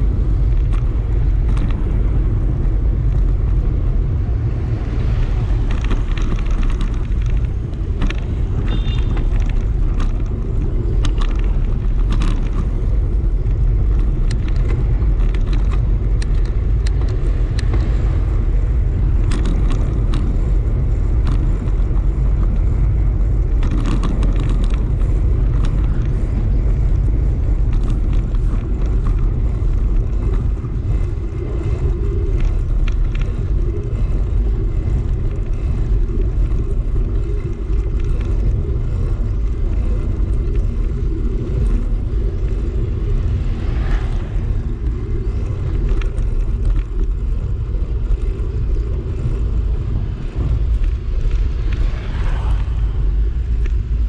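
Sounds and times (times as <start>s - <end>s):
small rattles and clicks: 0.0s - 54.0s
tyre noise on concrete road: 0.0s - 54.0s
wind rushing over microphone: 0.0s - 54.0s.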